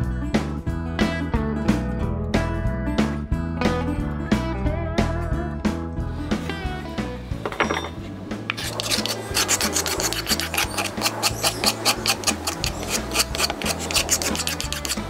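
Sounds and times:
knife blade scraping wood: 8.5s - 15.0s.

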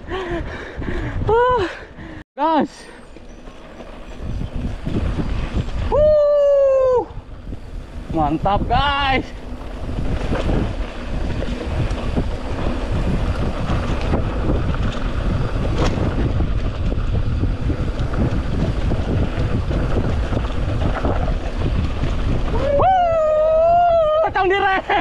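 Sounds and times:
wind on camera microphone: 0.0s - 2.2s, 3.9s - 25.0s
bike tyre rumble on dirt: 0.0s - 25.0s
bike knocks and rattles: 8.9s - 22.6s.

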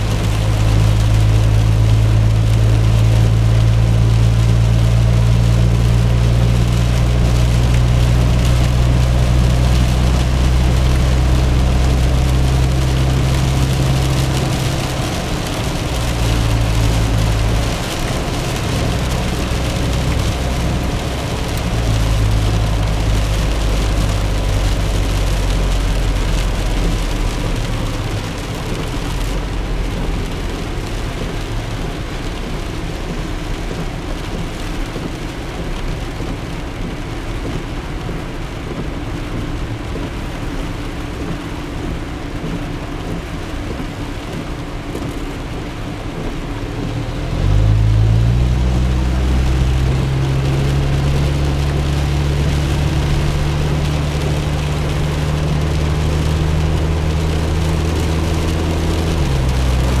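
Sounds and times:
road and rain noise: 0.0s - 60.0s.

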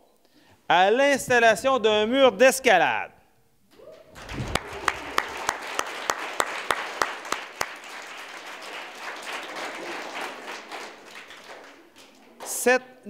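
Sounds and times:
audience applauding: 4.1s - 12.7s.

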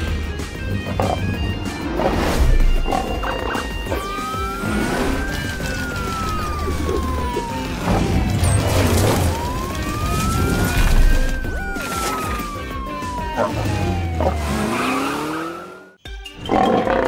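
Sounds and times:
wailing siren: 2.9s - 16.0s.

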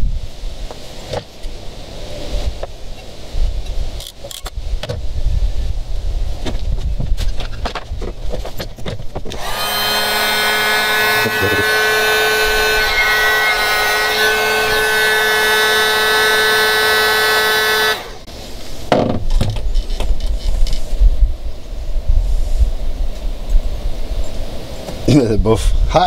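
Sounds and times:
heat gun blowing air: 9.3s - 18.3s.

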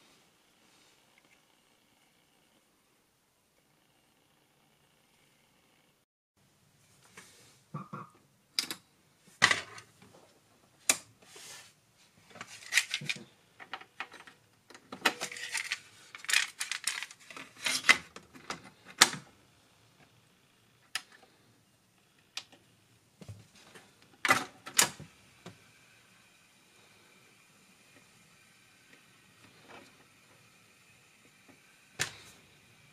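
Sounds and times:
faint hum of cassette deck: 12.2s - 32.9s.

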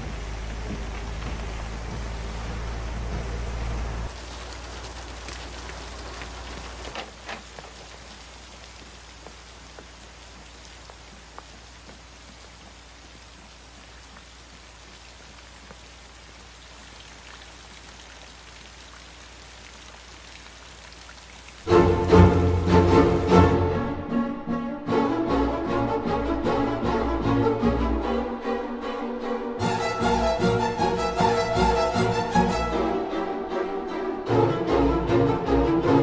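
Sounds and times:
low rumble: 0.0s - 4.6s
water drips: 0.0s - 23.4s
steady rain falling: 0.0s - 36.0s.

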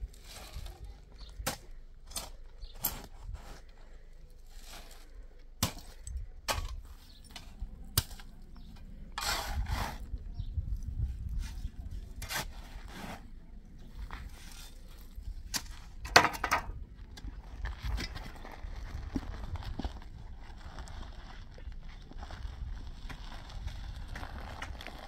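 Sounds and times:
dirt scraping: 0.0s - 25.0s
shovel clanking and scraping: 0.1s - 3.6s, 4.4s - 10.1s, 11.4s - 13.3s.

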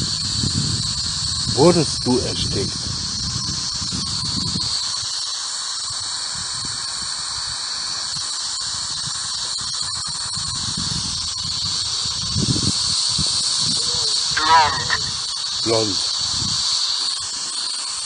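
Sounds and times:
radio static hiss: 1.6s - 2.8s, 13.3s - 16.2s
high whine: 13.4s - 16.1s.

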